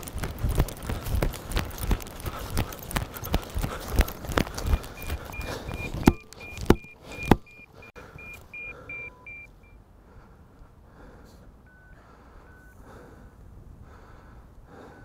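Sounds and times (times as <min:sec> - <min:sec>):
receiver beeping: 0:04.7 - 0:09.8, 0:11.6 - 0:12.8.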